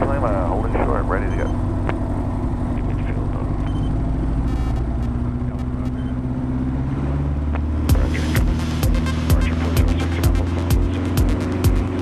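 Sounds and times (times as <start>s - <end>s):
propeller aircraft engine droning: 0.0s - 12.0s
music beats: 7.5s - 12.0s.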